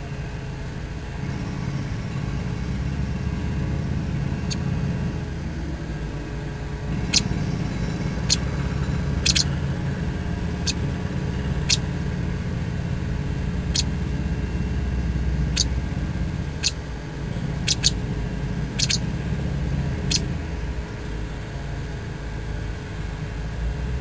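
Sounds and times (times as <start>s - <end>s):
steady low rumble: 0.0s - 24.0s
nestlings cheeping: 1.2s - 21.0s.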